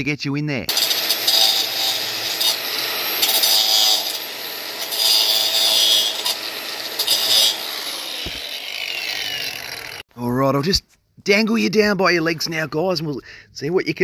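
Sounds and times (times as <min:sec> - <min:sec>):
angle grinder cutting pipe: 0:00.7 - 0:10.1.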